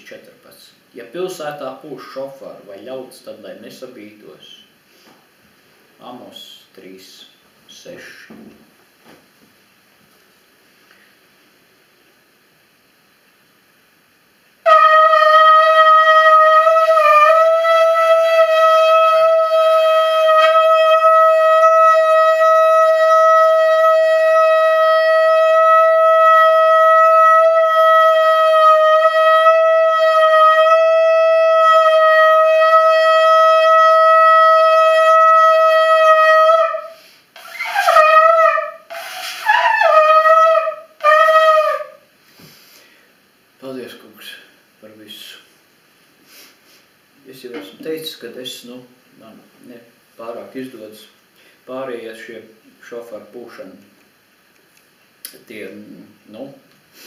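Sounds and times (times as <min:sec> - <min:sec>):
shofar short swooping blasts: 0:14.6 - 0:42.0
shofar long steady note: 0:14.6 - 0:42.1.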